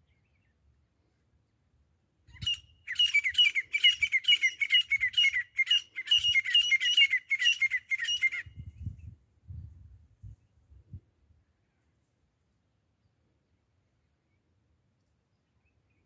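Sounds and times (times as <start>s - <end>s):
francolin calling: 2.3s - 8.5s.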